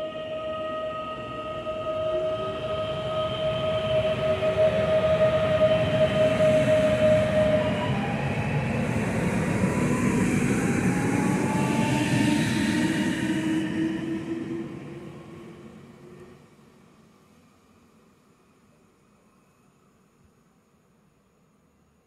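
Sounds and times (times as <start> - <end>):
train tones sliding lower: 0.0 - 16.5
train wheels rumbling on rail: 0.0 - 17.7
high train whine: 0.0 - 22.0.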